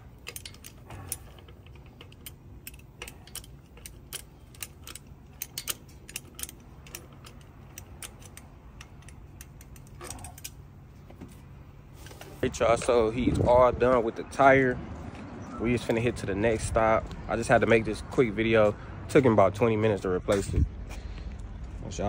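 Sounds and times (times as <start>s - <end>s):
metallic clicks of hand tools: 0.0s - 10.6s
steady low hum: 0.0s - 22.0s.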